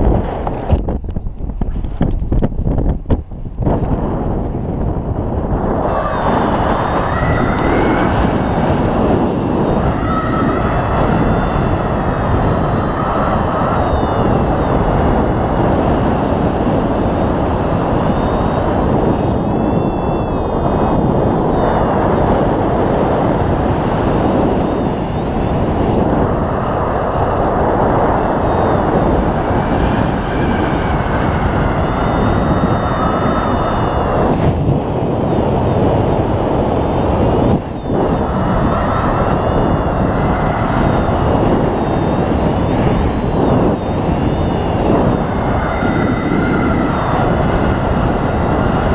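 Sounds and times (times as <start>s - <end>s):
wind rushing on microphone: 0.0s - 48.9s
thin high tones: 5.8s - 25.6s.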